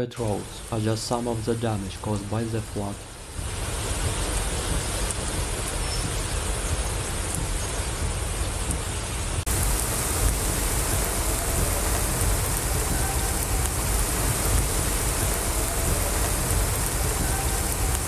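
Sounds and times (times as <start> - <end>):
heavy rain falling: 0.0 - 18.0
floodwater running: 0.2 - 18.0.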